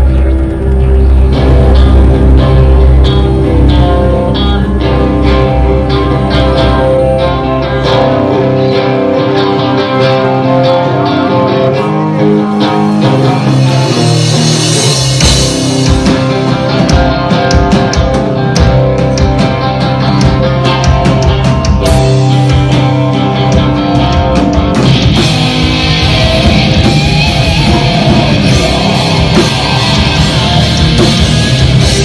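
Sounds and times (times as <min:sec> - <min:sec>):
electric guitars holding chords: 0:00.0 - 0:32.0
rock band playing: 0:00.0 - 0:32.0.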